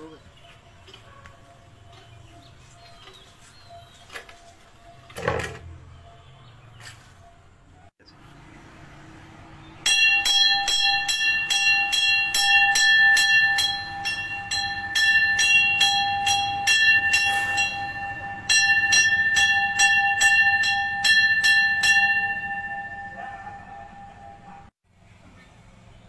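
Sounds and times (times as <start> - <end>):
temple bell ringing: 9.7 - 24.7.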